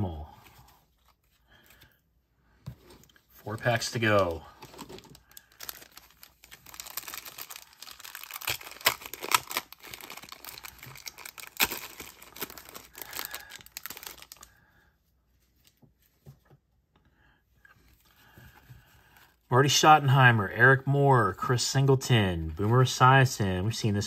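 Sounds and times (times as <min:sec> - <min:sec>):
wrapper tearing and crinkling: 0:03.6 - 0:14.5.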